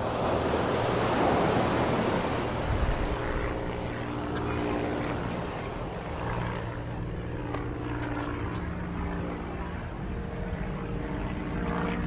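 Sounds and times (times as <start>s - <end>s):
waves washing onto beach: 0.0s - 8.4s
distant engine drone: 0.0s - 12.0s.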